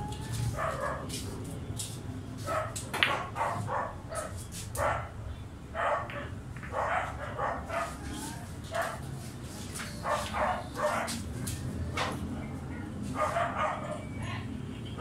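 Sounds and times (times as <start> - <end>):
dog barking: 0.6 - 1.1, 2.5 - 5.1, 5.8 - 8.0, 10.0 - 11.2, 13.2 - 14.1.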